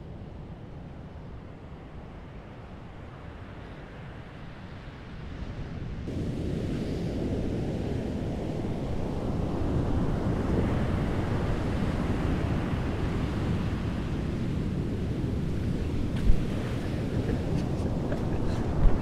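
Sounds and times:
wind rumbling on microphone: 0.0s - 19.0s
ocean surf breaking: 15.4s - 19.0s.

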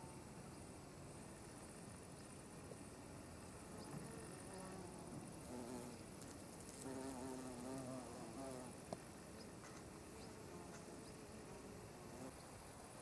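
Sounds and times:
bee buzzing in flight: 3.7s - 8.8s, 10.1s - 12.4s.

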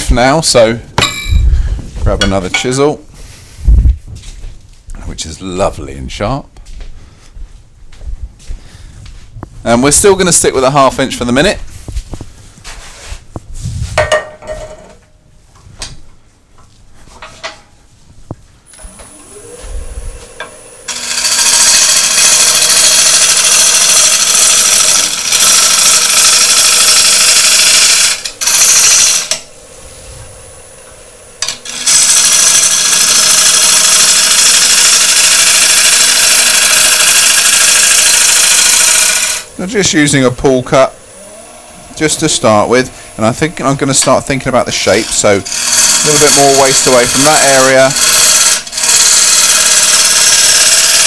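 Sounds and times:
tool handling knocks: 14.0s - 15.0s
wood lathe motor hum: 18.7s - 51.0s
gouge shearing wood: 20.2s - 29.6s, 30.2s - 51.0s.

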